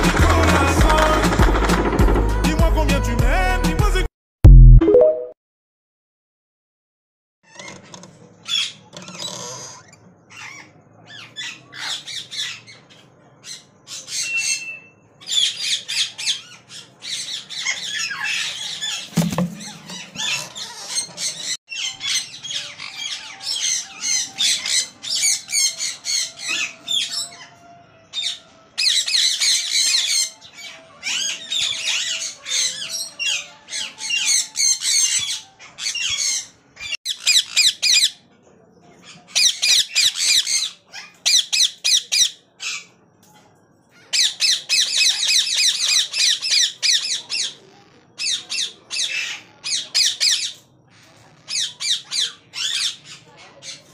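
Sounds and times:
parakeet nestlings chirping: 15.3 - 27.0.

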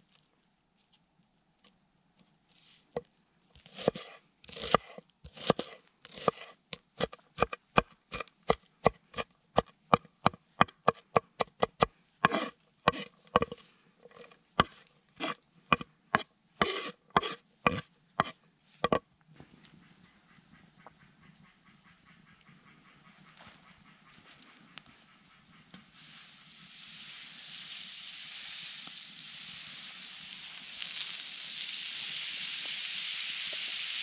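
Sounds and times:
knife crunching through onion: 3.6 - 9.2, 11.4 - 15.8.

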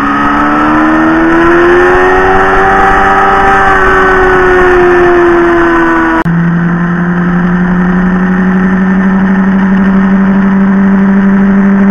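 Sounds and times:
motorcycle engine drone: 0.0 - 11.9
wind and road noise: 0.0 - 11.9.

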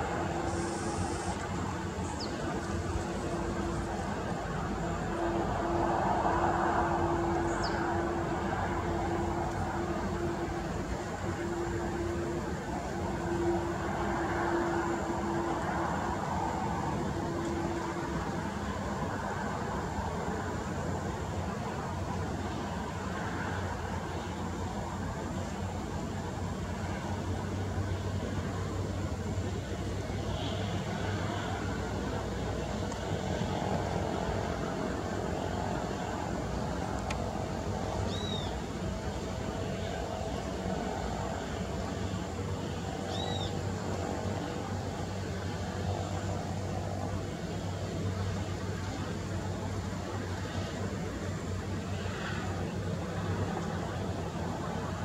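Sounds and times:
distant jet engines running: 0.0 - 55.0
bird chirp: 38.1 - 38.6, 43.1 - 43.5.

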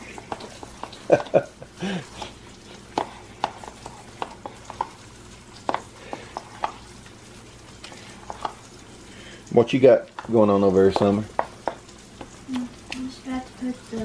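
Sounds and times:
dough mixing clicks against bowl: 0.0 - 1.5, 2.1 - 7.2, 7.8 - 8.8, 10.0 - 13.1
faint frying sizzle: 0.0 - 14.0.

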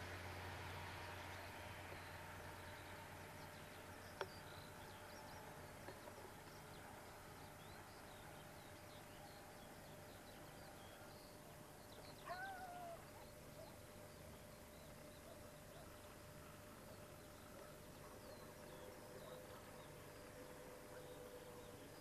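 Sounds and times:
small birds chirping: 0.4 - 22.0.

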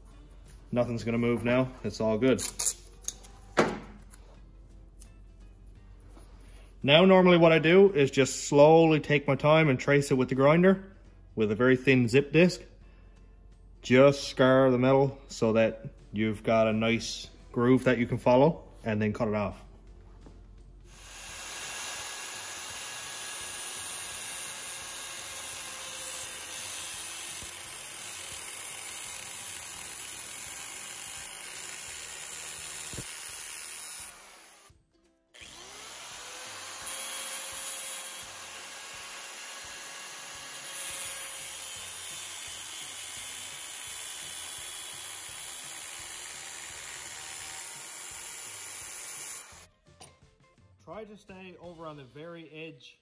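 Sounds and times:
angle grinder cutting steel: 20.9 - 34.7, 35.4 - 49.7.

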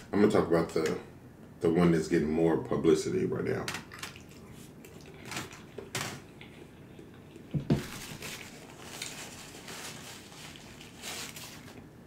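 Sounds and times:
chewing noodles: 4.1 - 7.5
paper napkin rustling: 7.7 - 11.8.

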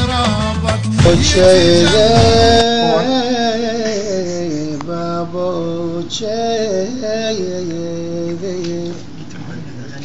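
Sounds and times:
band music with bass: 0.0 - 3.0
man singing unaccompanied: 0.0 - 9.2.

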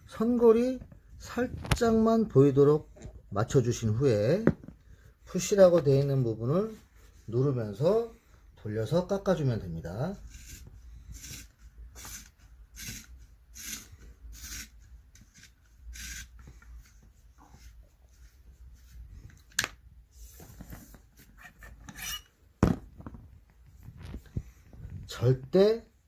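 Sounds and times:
blade rasping on leather: 10.2 - 16.3.

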